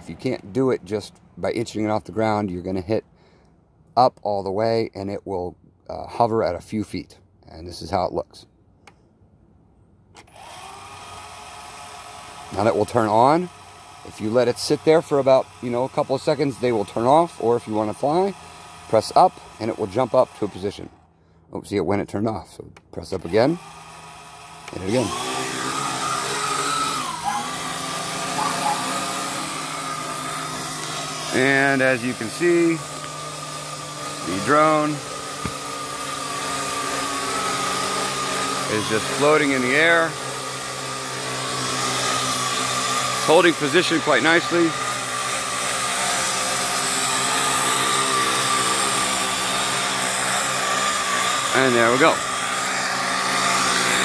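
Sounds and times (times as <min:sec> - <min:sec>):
drone propellers whining: 0:23.6 - 0:54.0.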